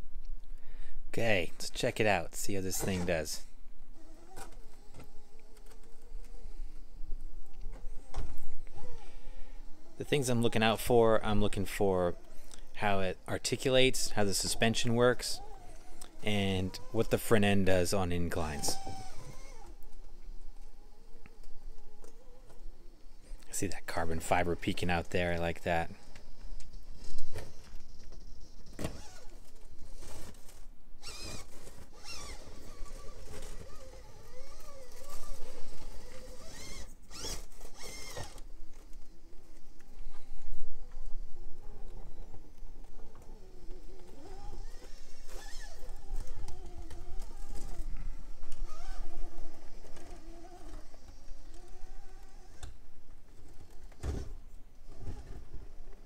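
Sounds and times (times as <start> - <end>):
electric motor whining: 18.3 - 23.2, 31.0 - 52.8.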